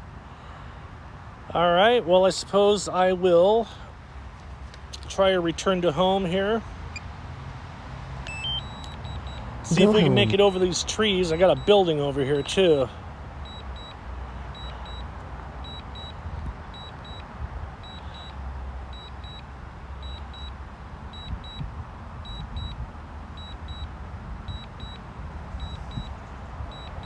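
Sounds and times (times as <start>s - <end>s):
remote controller double beeps: 8.3s - 10.6s.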